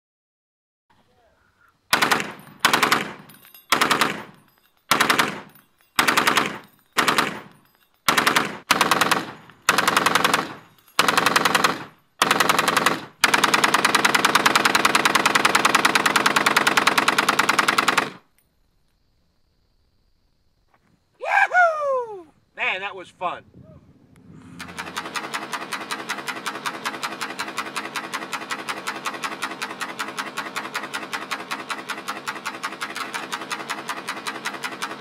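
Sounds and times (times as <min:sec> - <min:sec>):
machine gun bursts: 0:01.9 - 0:18.3, 0:24.6 - 0:35.0.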